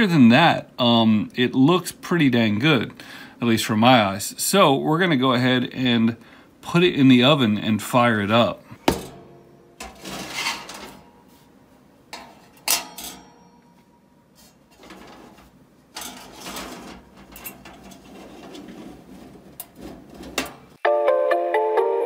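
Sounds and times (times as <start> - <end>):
metal tray clattering and scraping: 8.8 - 20.8.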